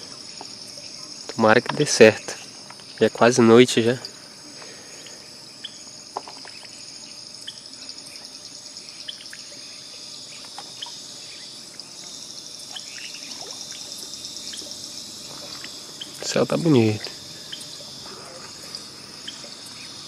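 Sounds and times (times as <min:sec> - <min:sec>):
insects trilling: 0:00.0 - 0:20.0
water dripping and splashing: 0:11.7 - 0:20.0.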